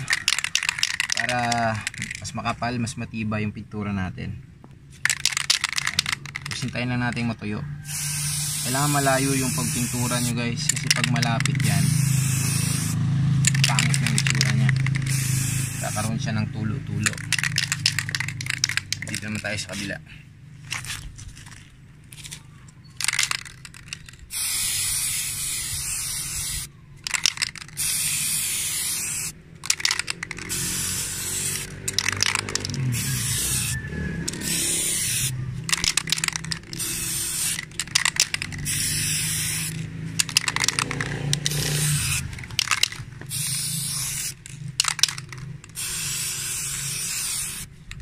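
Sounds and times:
aerosol spray can hissing: 7.8s - 16.2s, 17.1s - 19.9s, 23.0s - 47.7s.

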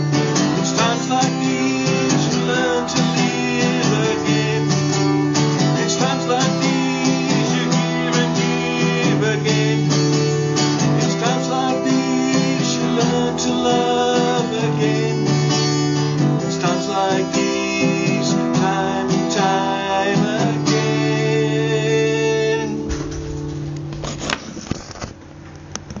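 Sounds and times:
man singing: 0.0s - 15.7s, 16.4s - 22.9s
acoustic guitar strumming: 0.0s - 25.7s
handling knocks: 22.8s - 25.1s.

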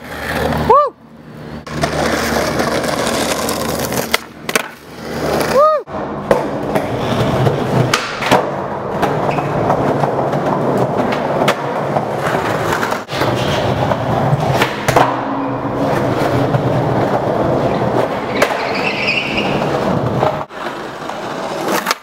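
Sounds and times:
skateboard wheels rolling on wood: 0.0s - 22.0s
skateboard clacks: 1.7s - 22.0s.

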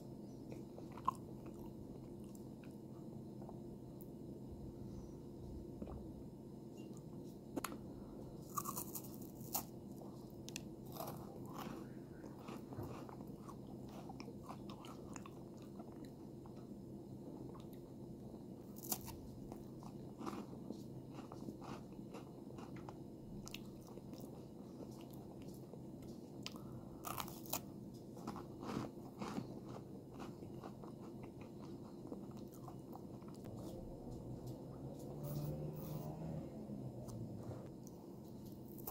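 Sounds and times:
chewing and crunching: 0.4s - 3.6s, 6.8s - 16.7s, 17.4s - 17.9s, 18.7s - 36.3s, 37.0s - 38.9s.

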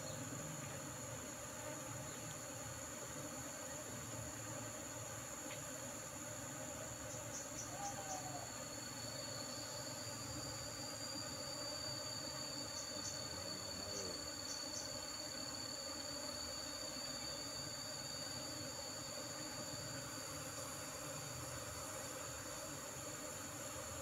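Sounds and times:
high-pitched insect trilling: 6.9s - 22.6s.

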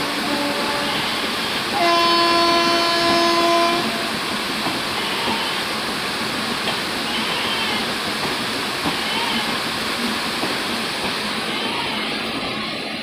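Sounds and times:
train horn chord: 0.0s - 4.2s
heavy rain: 0.0s - 13.0s
train coaches rolling past: 0.0s - 13.0s.

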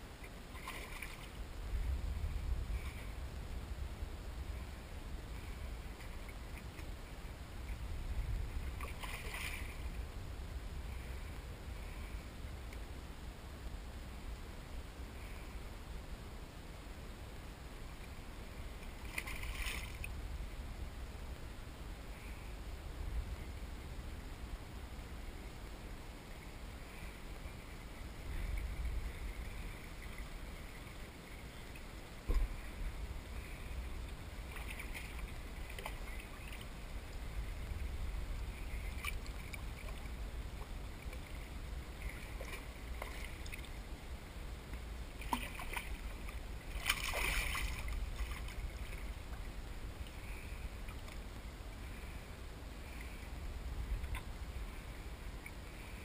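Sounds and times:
water lapping on kayak hull: 0.2s - 3.3s, 4.5s - 10.2s, 18.0s - 20.3s, 26.4s - 56.0s
low rumble: 1.3s - 56.0s.

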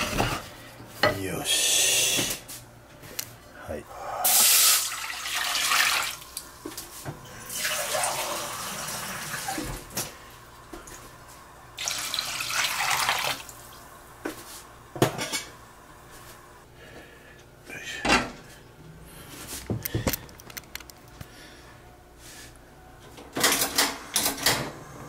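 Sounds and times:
water pouring into metal pot: 4.4s - 6.2s, 7.5s - 9.6s, 11.8s - 13.5s.

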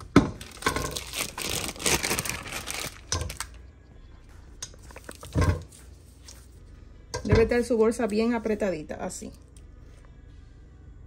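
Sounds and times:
plastic bag crinkling: 0.4s - 3.6s.

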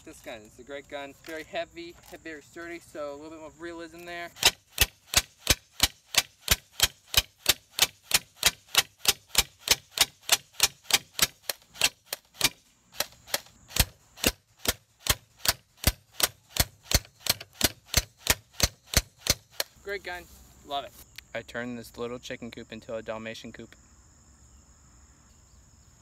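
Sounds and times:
airsoft rifle shots: 4.2s - 19.8s.

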